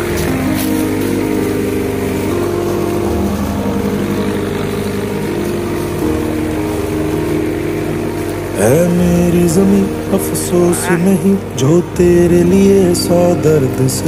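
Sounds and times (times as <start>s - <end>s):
background music of held chords: 0.0s - 14.0s.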